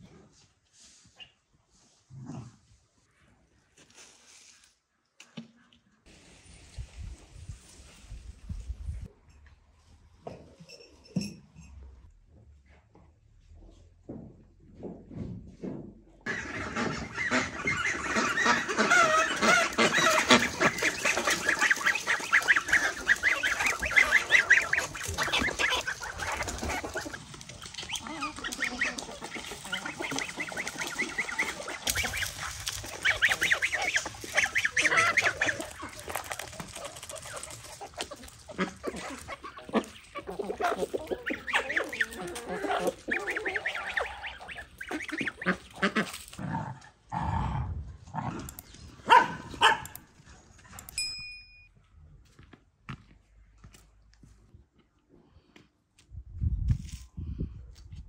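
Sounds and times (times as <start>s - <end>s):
chickens clucking: 16.2s - 46.4s
ducks quacking: 16.2s - 46.4s.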